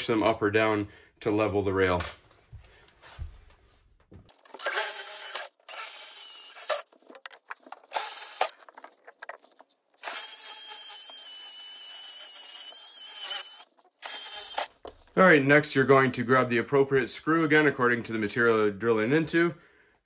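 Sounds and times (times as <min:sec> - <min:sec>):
drill boring into concrete: 0:04.5 - 0:06.8, 0:07.9 - 0:08.5, 0:10.0 - 0:14.7.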